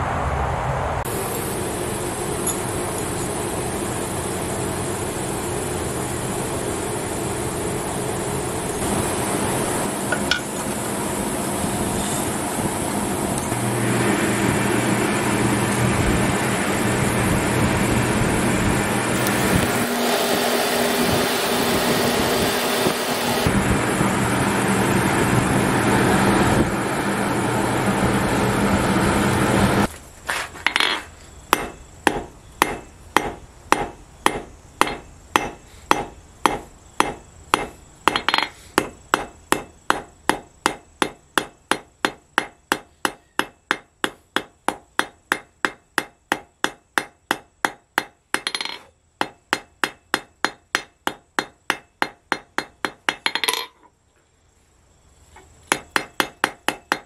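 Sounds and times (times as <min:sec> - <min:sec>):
forge air blower roaring: 0:01.0 - 0:29.9
hammer striking steel on anvil: 0:10.1 - 0:10.6, 0:30.6 - 0:53.8, 0:55.7 - 0:57.0.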